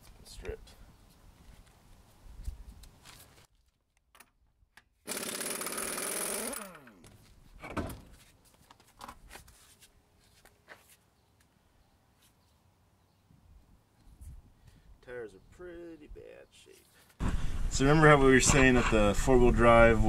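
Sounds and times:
impact wrench whirring: 0:05.1 - 0:07.1.

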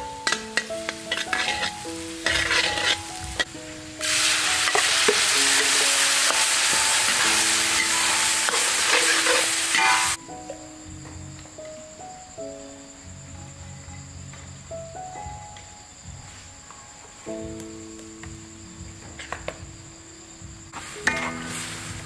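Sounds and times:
food sizzling in hot oil: 0:00.0 - 0:10.2, 0:20.7 - 0:22.0
metal spatula scraping wok: 0:00.2 - 0:10.2, 0:21.0 - 0:22.0.

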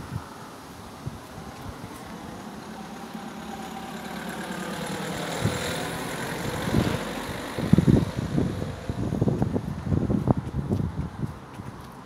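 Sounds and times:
wind buffeting microphone: 0:00.0 - 0:12.0
vehicle passing: 0:00.8 - 0:12.0.

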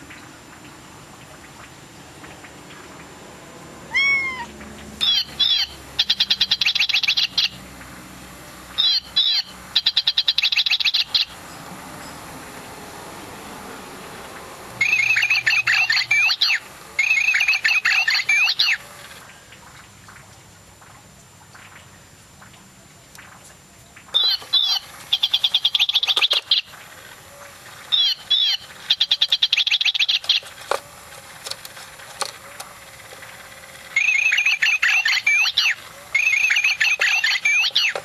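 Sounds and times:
toy bird electronic birdsong: 0:03.9 - 0:07.6, 0:08.7 - 0:11.4, 0:14.8 - 0:19.2, 0:24.2 - 0:38.0.

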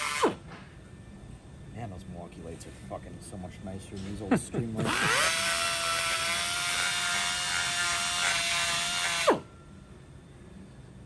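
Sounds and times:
die grinder whining: 0:04.8 - 0:09.4.

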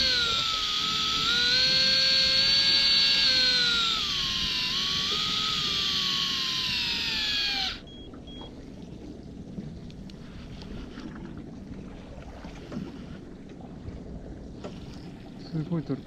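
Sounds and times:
electric reel motor whining: 0:00.0 - 0:08.0
low boat and water noise: 0:00.0 - 0:16.0
short beeps: 0:07.8 - 0:08.5.

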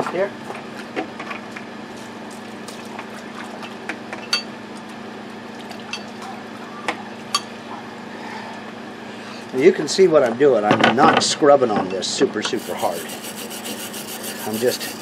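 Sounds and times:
steady low hum: 0:12.5 - 0:15.0.

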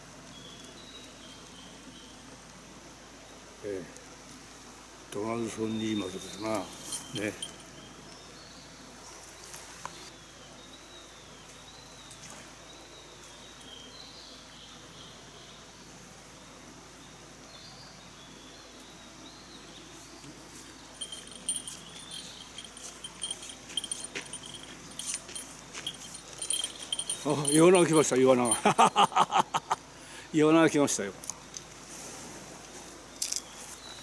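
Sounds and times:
steady hiss: 0:00.0 - 0:34.0
bird chirping: 0:05.7 - 0:08.8, 0:17.6 - 0:29.8
metallic jingling: 0:06.6 - 0:07.8, 0:21.0 - 0:29.7.

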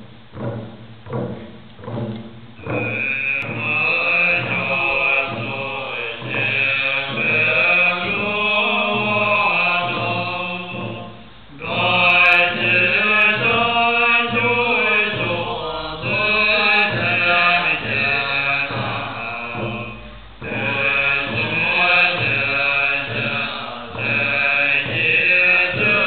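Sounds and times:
monks chanting in low voices: 0:02.6 - 0:26.0.

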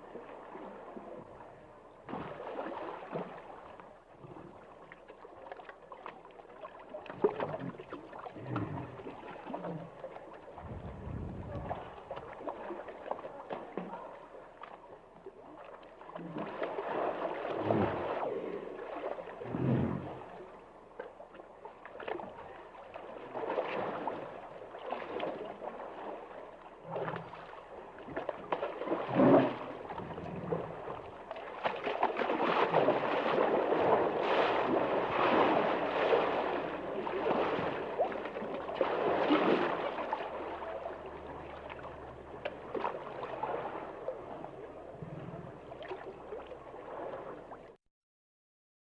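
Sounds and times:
water sloshing and gurgling: 0:00.0 - 0:47.8.

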